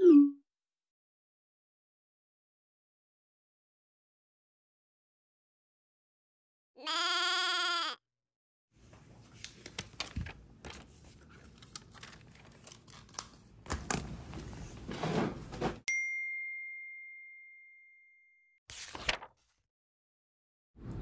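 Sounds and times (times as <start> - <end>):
bright ding chime: 15.9 - 18.2.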